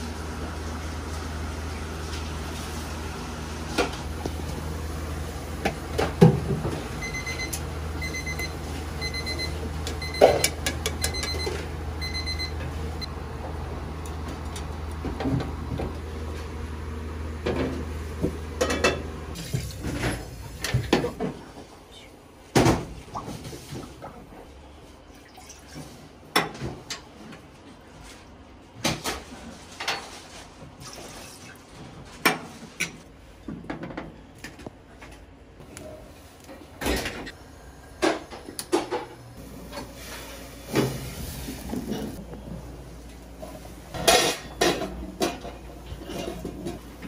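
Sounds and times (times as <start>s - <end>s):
pots and utensils clinking: 9.8s - 11.7s, 18.6s - 21.3s, 43.9s - 47.0s.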